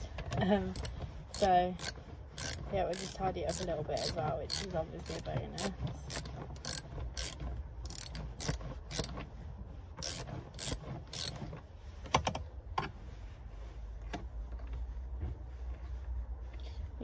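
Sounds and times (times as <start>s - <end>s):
ratchet wrench clicking: 0.7s - 9.2s, 10.0s - 11.4s.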